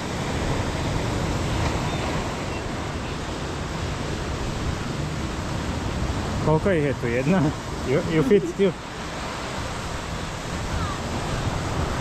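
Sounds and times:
sea surf on rocky shore: 0.0 - 12.0
wind on microphone: 7.5 - 12.0.

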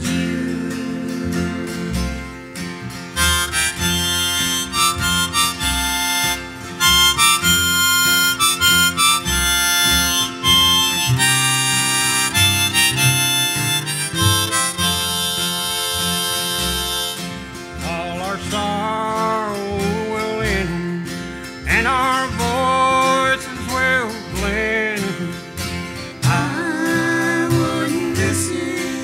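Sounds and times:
plucked upright bass: 0.0 - 29.0
strummed acoustic guitars: 0.0 - 29.0
harmonica playing: 2.9 - 24.8, 25.4 - 29.0.

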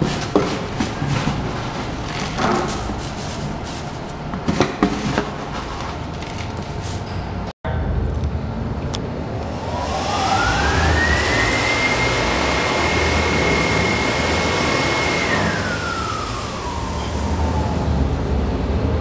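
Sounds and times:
blower rush of air: 9.2 - 19.0
motor whine: 9.4 - 18.2.

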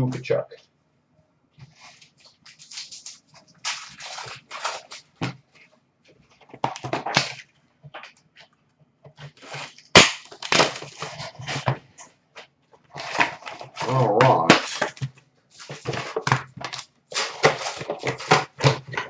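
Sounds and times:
cardboard box rustling: 1.7 - 5.6
foil wrappers crinkling: 1.7 - 5.7, 9.2 - 12.1, 12.9 - 19.0.

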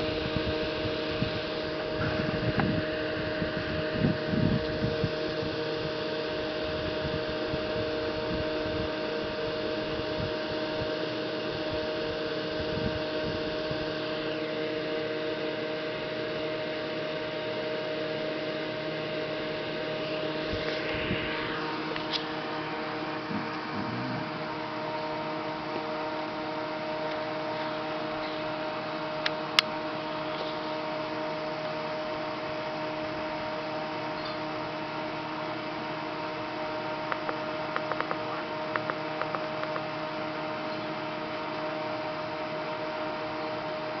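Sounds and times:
steady machine hum: 0.0 - 44.0.

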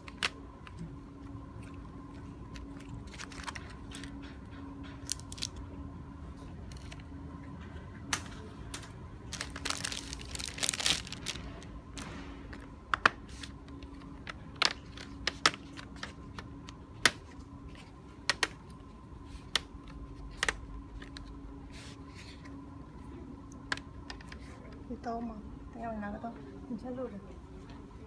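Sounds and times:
plastic crackling: 0.0 - 4.4, 5.0 - 5.7, 8.1 - 17.4.

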